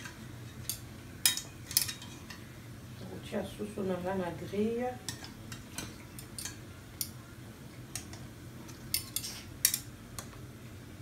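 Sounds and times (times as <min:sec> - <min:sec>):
metal tongs clicking on a pan: 0:06.2 - 0:07.2, 0:08.9 - 0:10.3.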